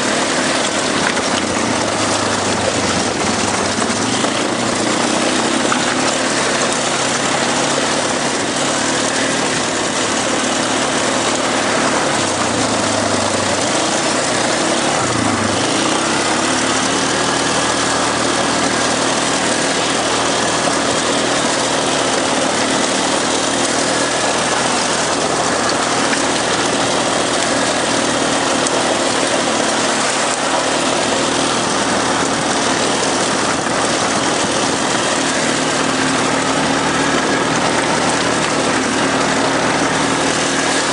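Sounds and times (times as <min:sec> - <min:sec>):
quad bike engine running: 0:00.0 - 0:40.9.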